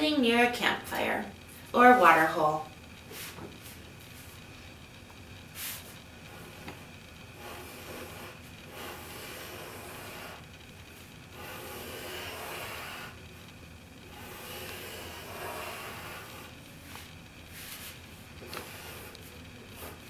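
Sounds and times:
pencil sketching on paper: 7.4 - 10.5, 11.3 - 13.4, 14.1 - 20.0.

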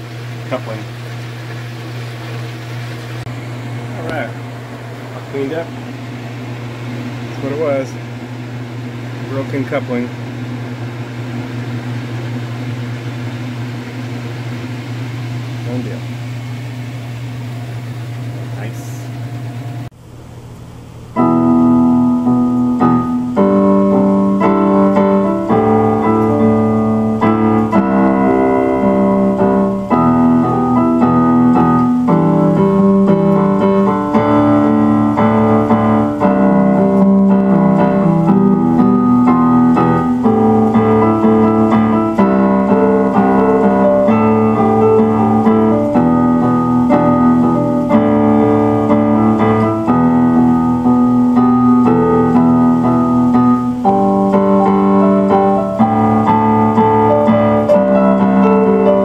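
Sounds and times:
solo piano music: 21.1 - 59.0.

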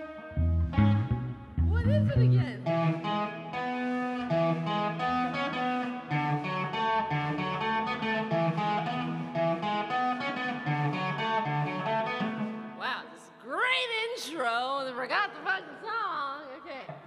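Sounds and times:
electric guitar picked notes: 0.0 - 13.4.

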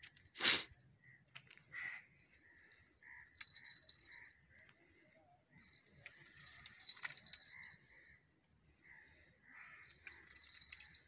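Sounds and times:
crow cawing: 1.7 - 2.1, 8.8 - 10.0.

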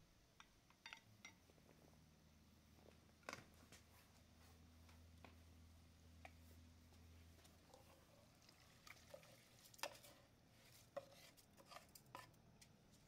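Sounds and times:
soft wet sounds: 6.3 - 13.0
wooden spoon scraping pot: 7.5 - 12.4.

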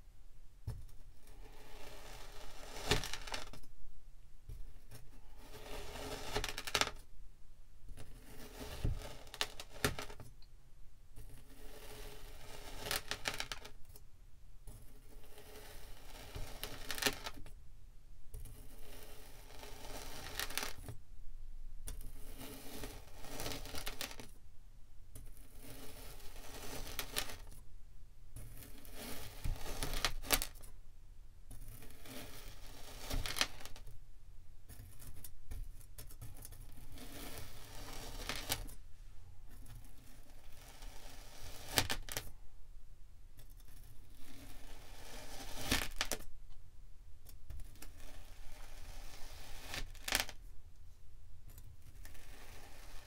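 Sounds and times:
knife cutting gritty sand: 4.5 - 6.5, 8.0 - 9.8, 11.2 - 13.1, 14.7 - 17.2, 21.9 - 23.9, 25.2 - 27.4, 28.4 - 30.5, 31.5 - 33.8, 36.2 - 38.7, 47.8 - 50.1, 52.1 - 53.0.

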